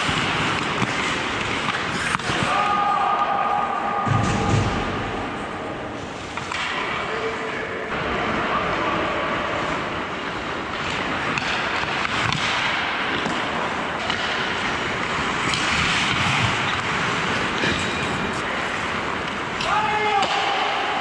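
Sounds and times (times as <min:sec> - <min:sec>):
clacks of sticks and puck: 0:00.0 - 0:03.4, 0:06.0 - 0:07.1, 0:09.7 - 0:21.0
skates scraping on ice: 0:00.0 - 0:07.1, 0:08.1 - 0:21.0.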